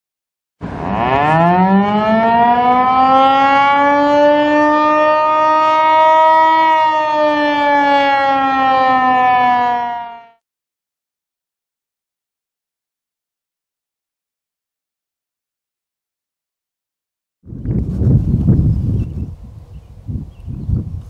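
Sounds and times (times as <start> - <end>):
warning siren winding up: 0.6 - 10.4.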